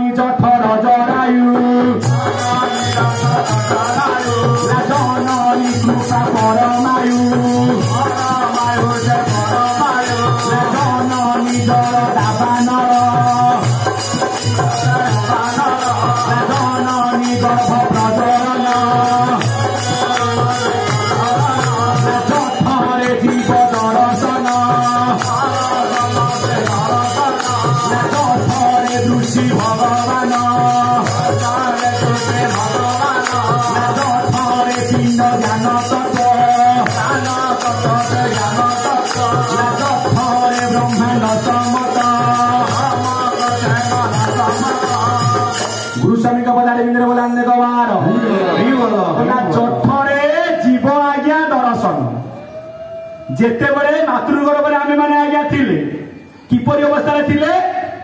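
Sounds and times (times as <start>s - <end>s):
jingling hand percussion: 0.0s - 47.8s
man singing: 0.0s - 52.2s
instrumental accompaniment: 1.5s - 46.5s.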